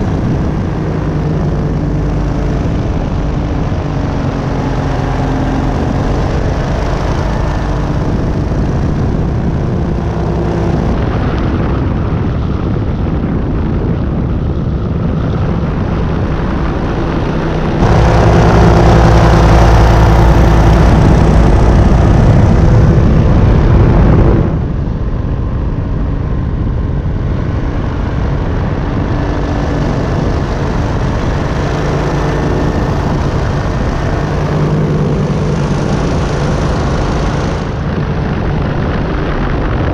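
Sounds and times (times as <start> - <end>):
engine and propeller running: 0.0 - 39.9.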